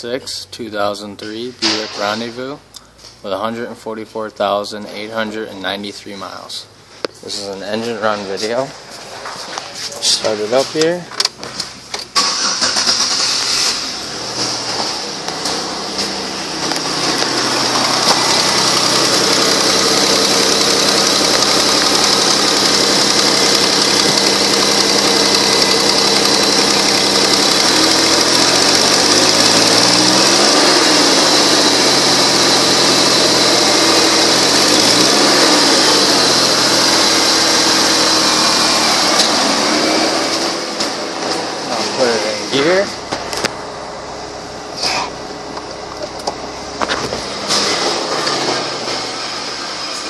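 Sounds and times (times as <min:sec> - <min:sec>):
car engine idling: 0:06.7 - 0:50.0
engine throttle blips: 0:12.0 - 0:50.0.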